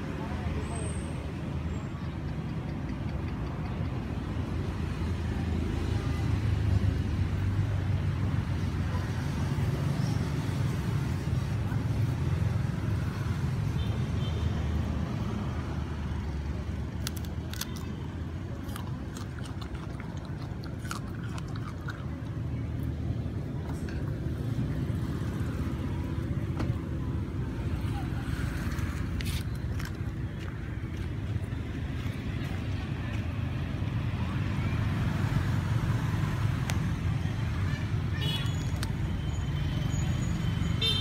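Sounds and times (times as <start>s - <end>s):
monkey biting and chewing: 17.0s - 22.9s, 28.6s - 32.5s.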